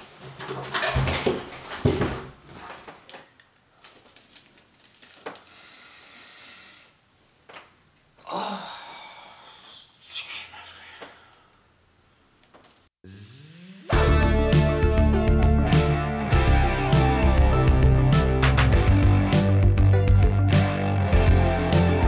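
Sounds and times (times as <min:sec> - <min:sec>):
man exhaling loudly: 0:08.2 - 0:11.5.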